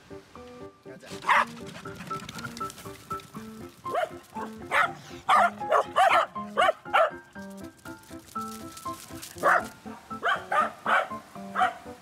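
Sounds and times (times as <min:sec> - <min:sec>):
light background music: 0:00.0 - 0:12.0
dogs barking: 0:01.2 - 0:03.0, 0:03.8 - 0:07.2, 0:09.4 - 0:12.0.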